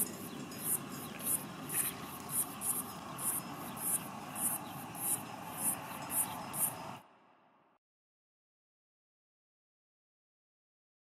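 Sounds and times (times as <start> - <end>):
steady hiss: 0.0 - 7.1
insects chirping: 0.0 - 7.3.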